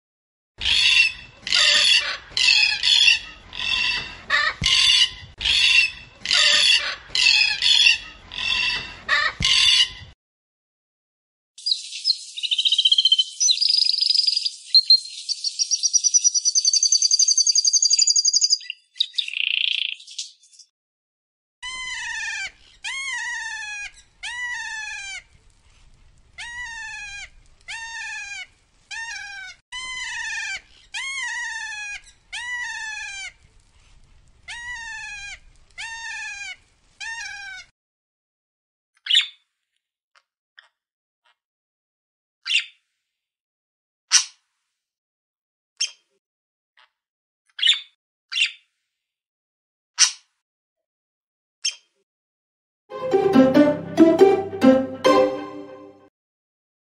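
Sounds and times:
canary trilling song: 11.6s - 20.4s
cockatoo screeching: 21.6s - 25.2s, 26.4s - 33.3s.

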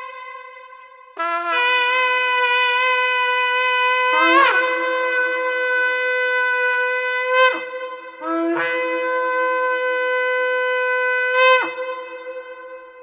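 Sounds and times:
shofar blasts: 0.0s - 13.0s.

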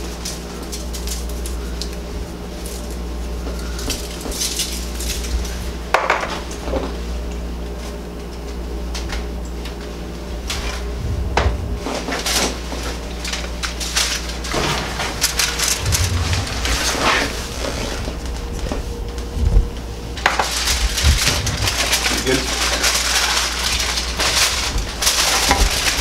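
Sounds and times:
aluminium foil crinkling: 0.0s - 5.9s, 12.2s - 16.5s, 20.2s - 26.0s
steady low hum: 0.0s - 26.0s.

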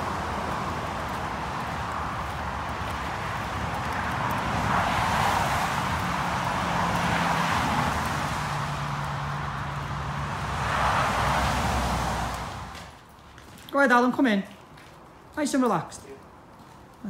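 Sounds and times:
tyres hissing on wet road: 0.0s - 13.0s.

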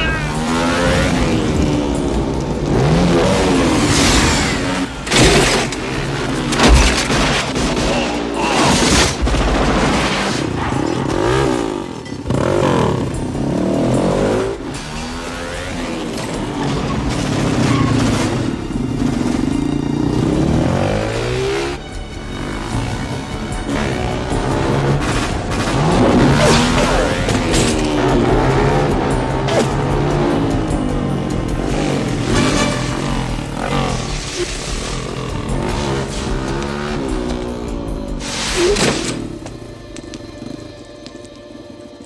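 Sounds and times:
motorcycle engine revving: 0.0s - 6.7s, 10.8s - 39.4s.

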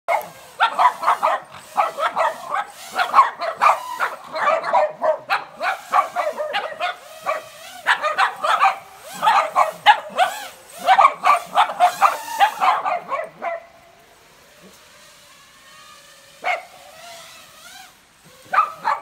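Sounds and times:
small dogs barking: 0.1s - 13.8s, 16.4s - 17.1s, 18.3s - 19.0s.

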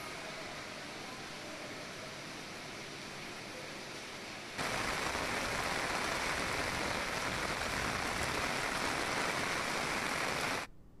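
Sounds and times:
water rushing: 4.6s - 10.7s.

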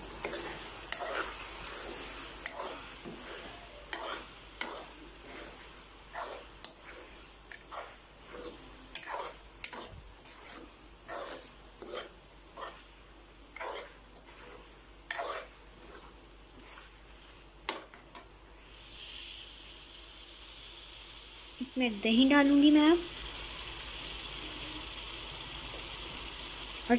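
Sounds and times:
faint frying sizzle: 0.0s - 26.9s
metal spoon scraping metal pan: 0.2s - 12.9s, 13.5s - 16.9s.

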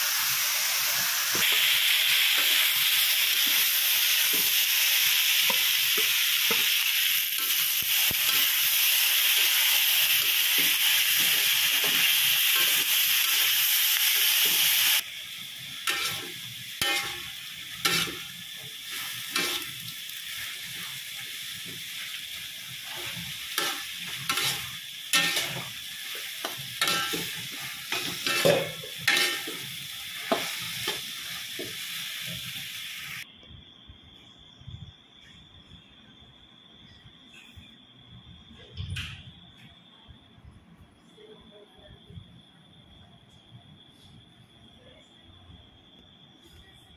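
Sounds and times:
vegetables sizzling in a wok: 0.0s - 33.3s
metal spatula scraping a wok: 15.8s - 20.9s, 22.8s - 29.6s.

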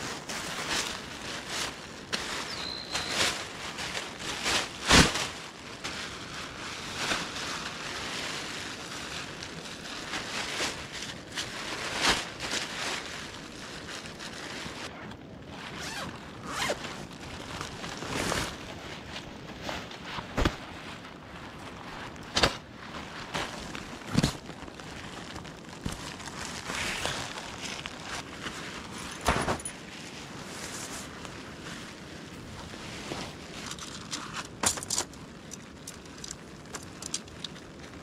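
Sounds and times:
plastic raincoat rustling: 0.0s - 38.0s.

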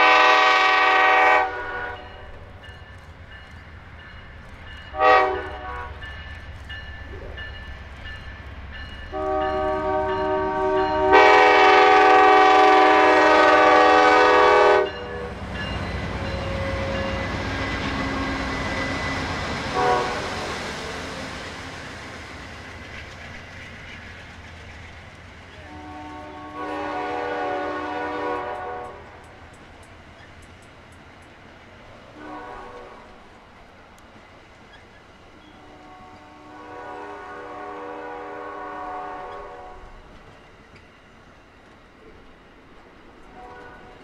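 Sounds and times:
locomotive air horn: 0.0s - 2.3s, 4.9s - 6.0s, 9.1s - 15.4s, 16.4s - 19.0s, 19.6s - 20.6s, 25.5s - 29.3s, 32.1s - 33.3s, 35.6s - 39.9s, 43.4s - 44.0s
train wheels clicking over rail joints: 1.5s - 13.7s, 14.8s - 27.0s, 28.4s - 36.4s, 39.2s - 44.0s.

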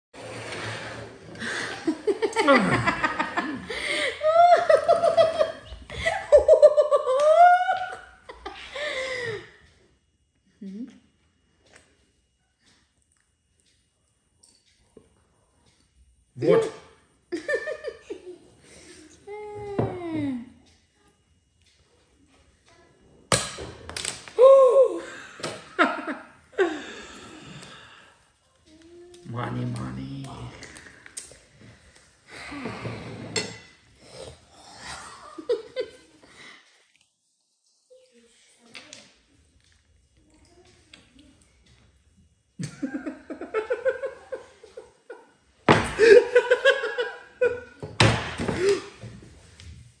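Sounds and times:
people laughing: 1.4s - 9.4s, 42.6s - 45.3s, 45.9s - 47.8s.

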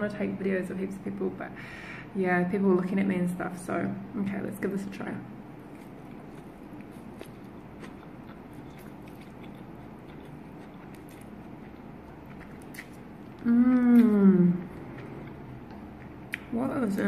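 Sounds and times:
person chewing noodles: 5.6s - 16.5s
person humming mmm: 13.4s - 14.9s.

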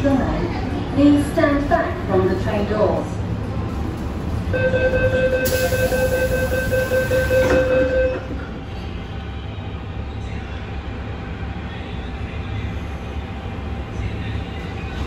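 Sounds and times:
train car low hum: 0.0s - 15.0s
door-closing warning tone: 4.6s - 8.4s
train doors sliding shut: 5.4s - 8.6s.

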